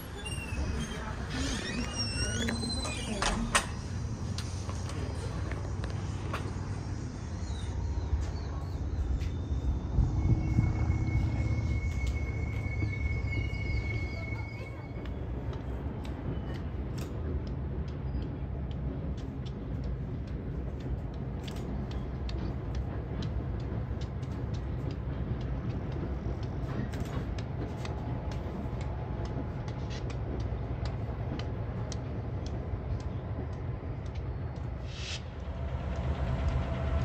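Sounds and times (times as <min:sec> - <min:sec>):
diesel locomotives rumbling: 0:00.0 - 0:37.0
freight cars clanking: 0:08.1 - 0:37.0.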